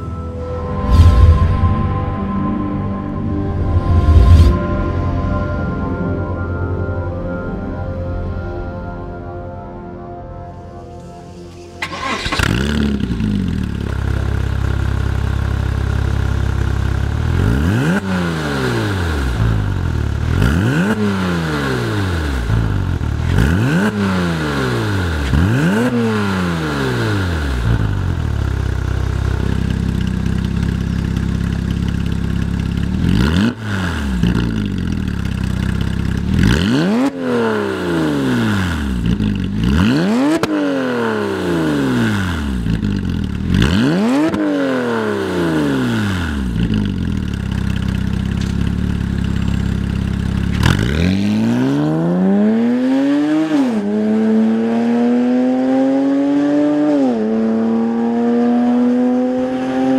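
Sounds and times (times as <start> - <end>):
car engine idling and revving: 10.8 - 59.9.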